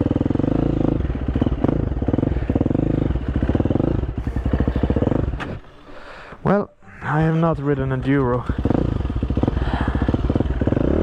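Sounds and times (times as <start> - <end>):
motorcycle engine revving: 0.0 - 5.9, 7.0 - 11.0.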